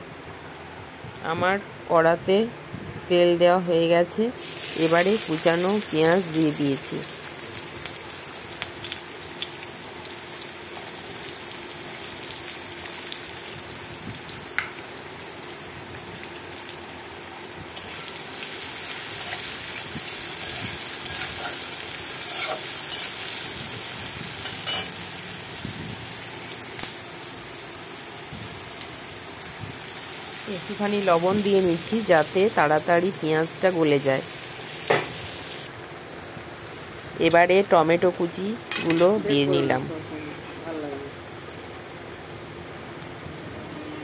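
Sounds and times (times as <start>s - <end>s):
onions sizzling in hot oil: 3.7s - 35.8s, 36.4s - 39.9s
spatula scraping: 22.2s - 23.2s.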